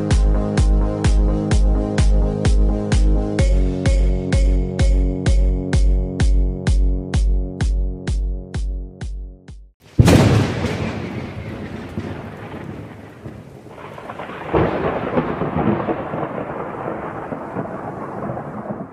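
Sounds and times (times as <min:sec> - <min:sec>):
electronic music: 0:00.0 - 0:09.6
rolling thunder rumble: 0:09.9 - 0:18.9
thunderclap: 0:09.9 - 0:18.9.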